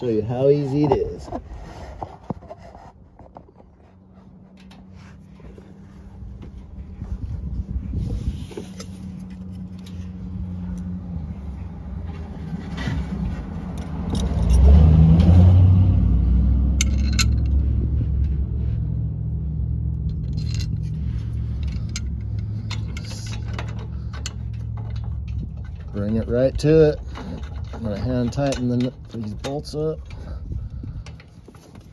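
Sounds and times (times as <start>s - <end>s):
vehicle engine rumble: 0.0s - 31.9s
metal parts clinking: 13.7s - 14.8s, 16.8s - 17.6s, 19.9s - 31.9s.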